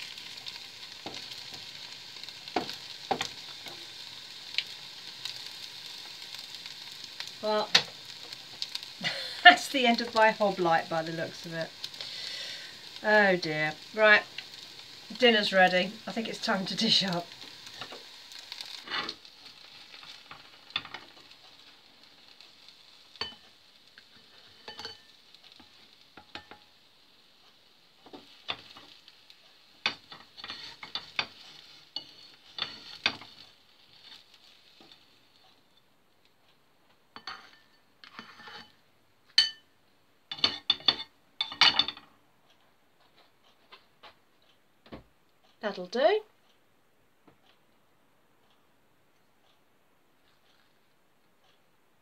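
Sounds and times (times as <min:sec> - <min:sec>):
fat sizzling in frying pan: 0:00.0 - 0:36.2, 0:36.9 - 0:42.0
utensil scraping pan and bowl: 0:18.8 - 0:19.2, 0:29.9 - 0:33.4, 0:37.2 - 0:38.8.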